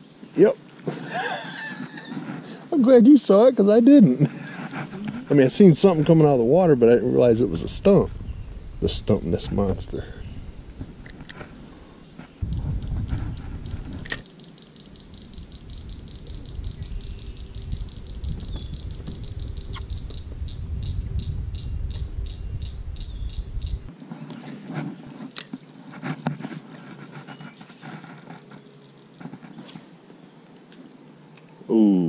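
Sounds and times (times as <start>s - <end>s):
wind rumble on microphone: 4.5s - 14.2s, 15.0s - 23.9s
fishing rod clicks and knocks: 14.0s - 14.2s, 25.3s - 25.6s.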